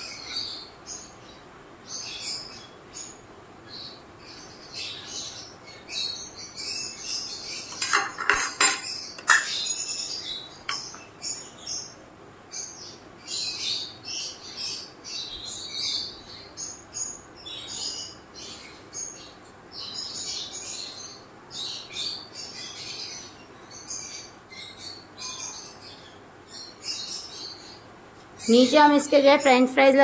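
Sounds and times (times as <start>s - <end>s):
small birds chirping: 0.0s - 30.0s
metal spoon clinking ceramic bowl: 7.8s - 9.6s.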